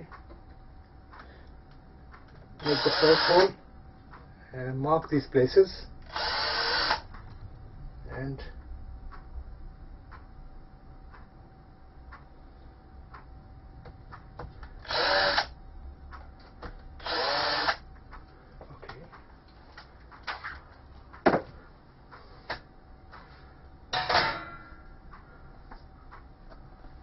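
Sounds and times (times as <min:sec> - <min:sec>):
cordless drill running: 0:02.6 - 0:03.6, 0:06.1 - 0:07.0, 0:14.8 - 0:15.5, 0:17.0 - 0:17.8.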